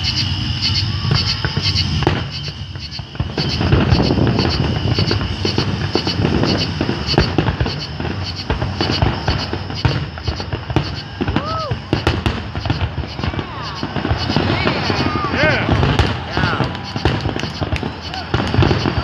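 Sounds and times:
fireworks shells bursting: 0.0 - 19.0.

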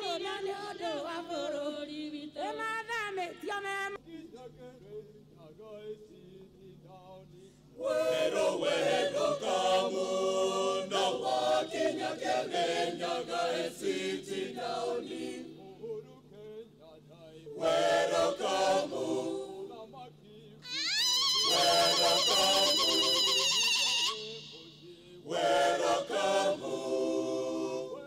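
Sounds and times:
mixed choir singing in harmony: 0.0 - 2.5, 7.8 - 16.0, 17.4 - 20.1, 21.0 - 28.0.

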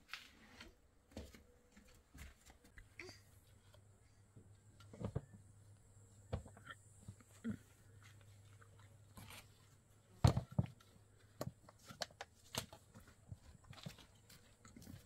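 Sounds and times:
light plastic clicks and rustles: 10.3 - 15.0.

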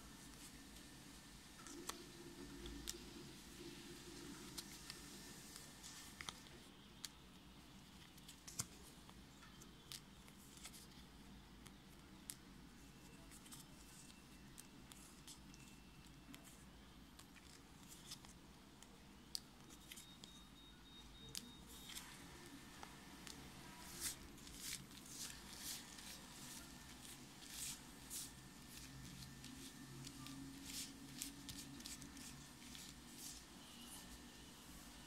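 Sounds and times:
stickers rustling and clicking: 13.0 - 20.4, 21.2 - 34.9.

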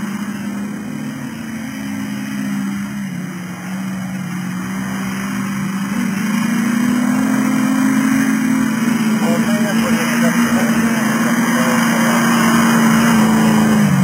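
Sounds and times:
racing car engine: 0.0 - 14.0.

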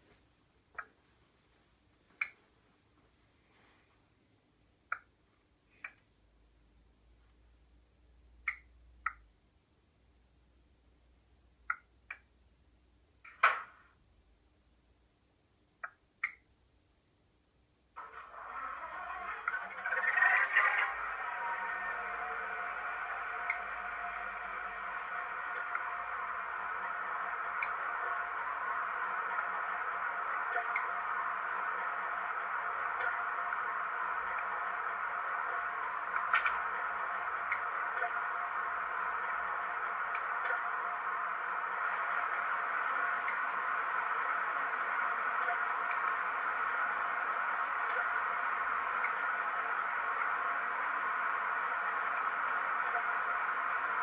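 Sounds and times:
diesel engine sound from small loudspeaker: 18.0 - 54.0.

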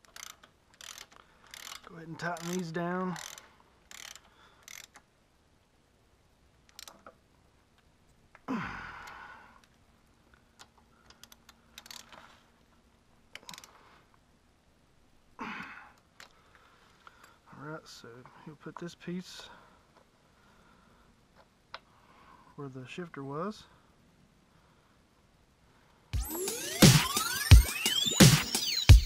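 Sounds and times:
socket ratchet clicking: 0.0 - 5.0, 6.7 - 7.1.

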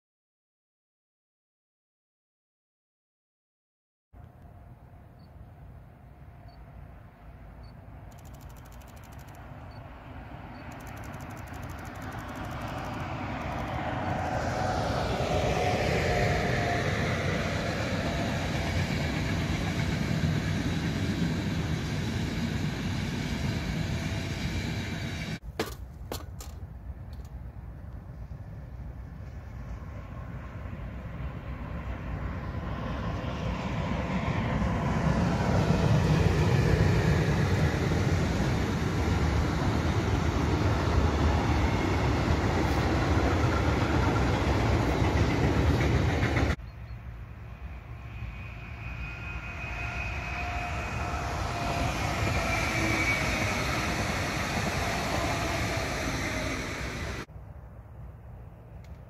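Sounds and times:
freight train rumbling on rails: 4.2 - 25.6, 26.4 - 57.3
wheels squealing: 10.5 - 14.6, 48.0 - 57.3.

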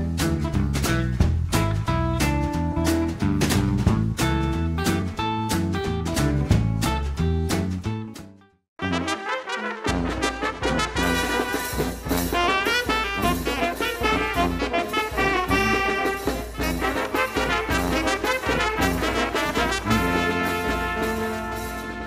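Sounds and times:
brass band playing lively tune: 8.8 - 22.0.

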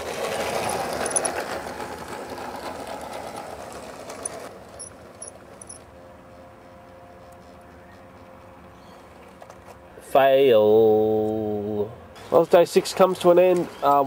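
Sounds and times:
model train motor whirring: 0.0 - 5.8.

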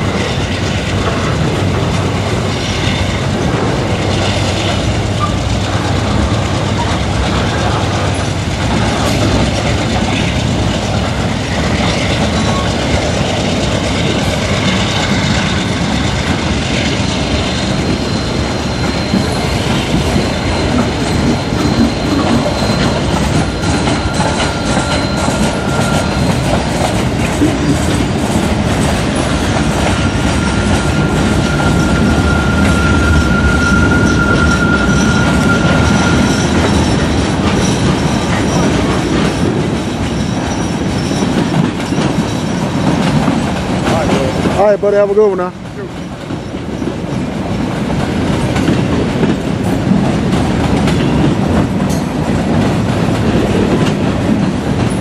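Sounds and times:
diesel locomotive drone: 0.0 - 55.0
train wheels clattering on rails: 0.0 - 55.0
wheel squeal: 11.3 - 28.5, 29.1 - 44.4.

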